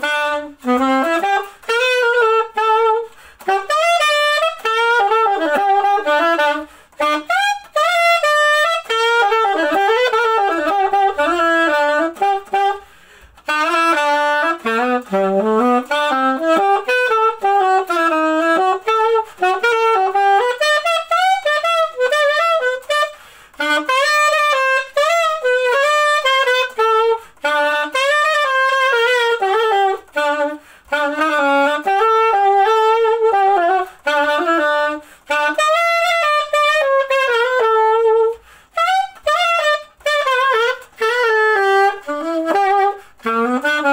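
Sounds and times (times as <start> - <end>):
solo alto saxophone melody: 0.0 - 43.9.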